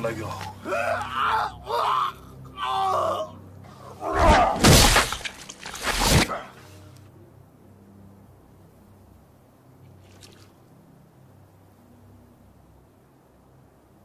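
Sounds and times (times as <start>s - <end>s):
axe strikes on a body: 4.1s - 6.4s.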